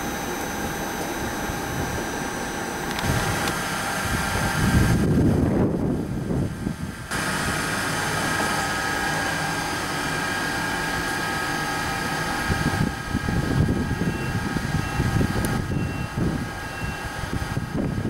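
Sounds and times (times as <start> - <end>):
electric train equipment whine: 0.0 - 18.0
rumbling noise: 0.0 - 18.0
short high beeps: 15.7 - 17.0.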